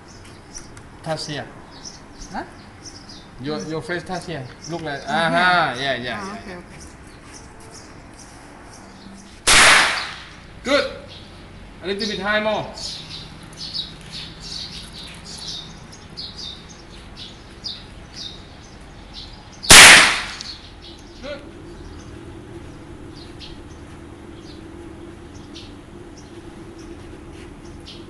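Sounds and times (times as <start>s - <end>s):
small birds chirping: 0.0s - 28.0s
faint steady hum: 9.2s - 28.0s
rifle shot with echo: 9.5s - 10.4s, 19.7s - 20.6s.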